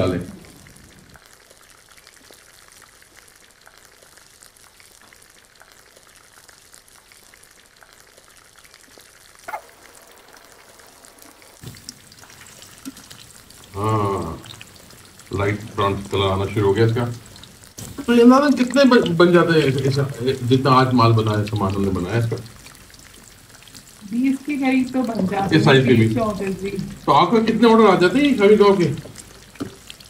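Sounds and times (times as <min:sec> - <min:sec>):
food sizzling in hot oil: 0:00.0 - 0:30.0
person's voice: 0:13.7 - 0:14.5, 0:18.0 - 0:22.4, 0:24.0 - 0:29.0.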